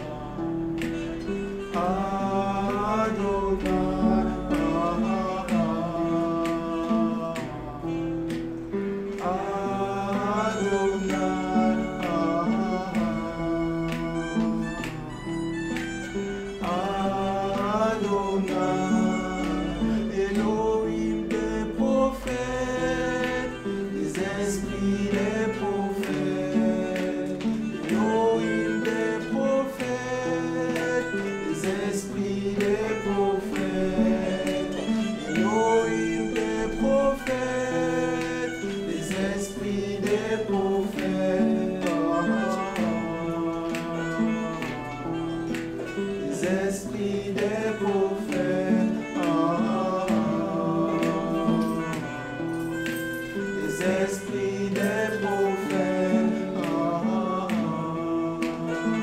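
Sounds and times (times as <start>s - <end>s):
guitar accompaniment: 0.0s - 59.0s
hymn singing: 0.0s - 59.0s.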